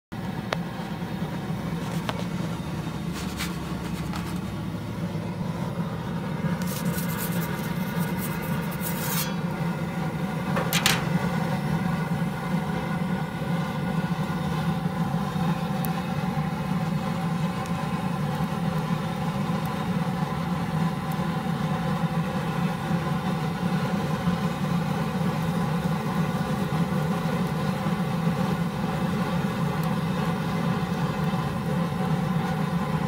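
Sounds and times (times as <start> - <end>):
pizza oven humming: 0.2 - 33.0
metal peel scraping on stone: 6.6 - 9.6, 10.7 - 11.2.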